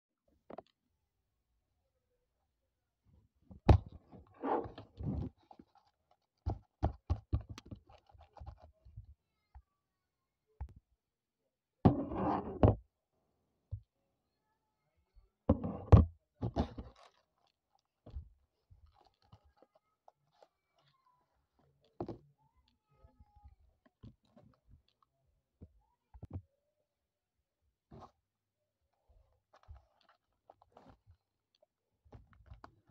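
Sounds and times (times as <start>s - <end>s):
paper crinkling: 5.3s - 6.4s.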